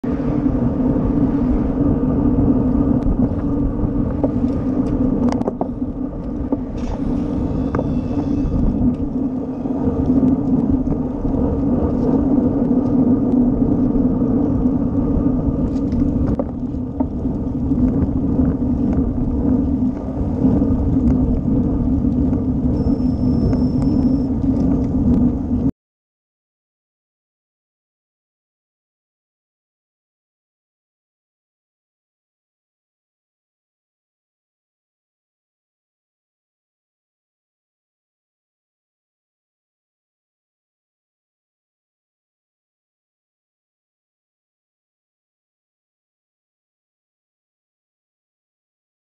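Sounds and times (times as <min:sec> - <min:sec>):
wind and road noise while cycling: 0:00.0 - 0:25.7.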